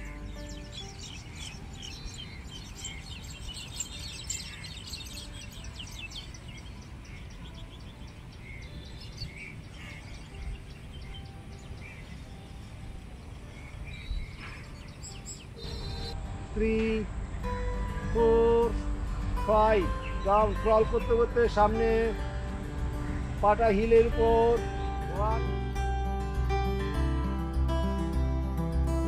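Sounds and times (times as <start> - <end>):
small birds chirping: 0.0 - 25.7
low background rumble: 15.6 - 23.6.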